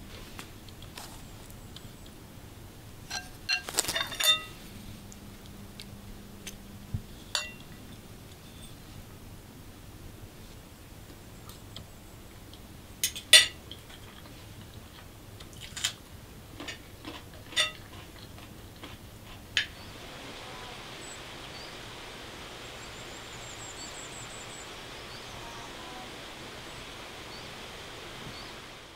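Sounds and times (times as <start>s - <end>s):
steady outdoor hiss: 0.0s - 28.9s
cutlery clinking on plates: 3.1s - 4.6s, 7.3s - 7.8s, 16.6s - 18.0s
faint bird chirps: 8.4s - 8.8s, 19.7s - 27.6s, 28.2s - 28.7s.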